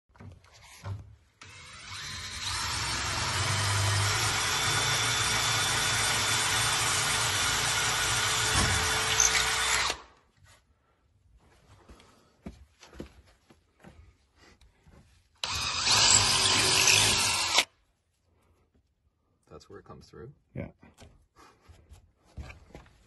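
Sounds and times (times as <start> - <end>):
drill boring into wood: 1.4 - 10.1, 15.4 - 17.7.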